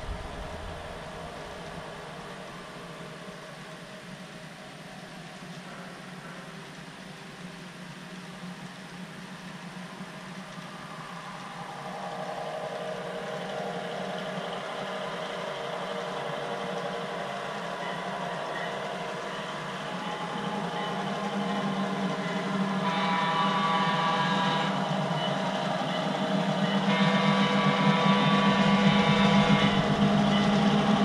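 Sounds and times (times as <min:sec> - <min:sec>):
steady hum: 0:00.0 - 0:05.0
model train running: 0:08.5 - 0:31.0.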